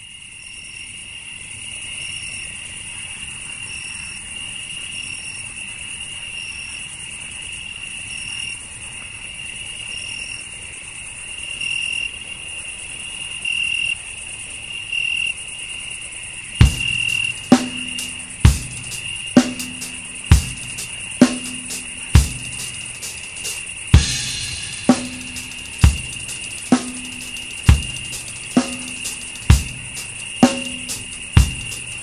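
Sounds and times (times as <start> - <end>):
crickets chirping: 0.0 - 32.0
drum kit strike: 16.6 - 32.0.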